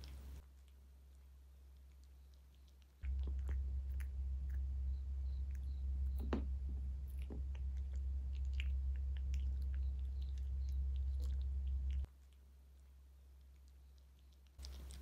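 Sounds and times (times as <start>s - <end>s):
steady low hum: 0.0s - 15.0s
cat crunching dry kibble: 14.5s - 15.0s.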